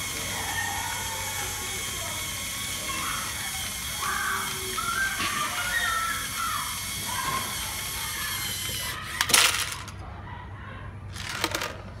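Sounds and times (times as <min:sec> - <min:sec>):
plastic pieces clattering into a tub: 0:09.2 - 0:10.0, 0:11.1 - 0:11.9.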